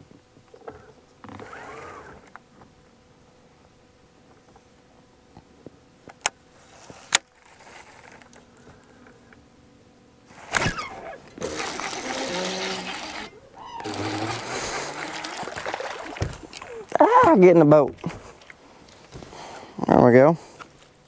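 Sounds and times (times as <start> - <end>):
fishing reel cranking: 10.3 - 15.6
fishing rod sweep: 10.3 - 17.0.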